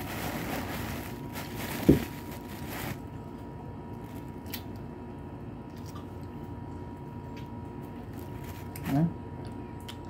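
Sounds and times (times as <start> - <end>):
fruit peel rustling: 0.0 - 3.3.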